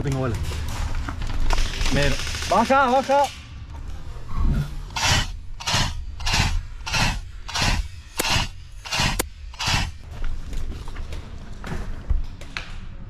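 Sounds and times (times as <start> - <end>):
sharp clicks: 5.0 - 9.9.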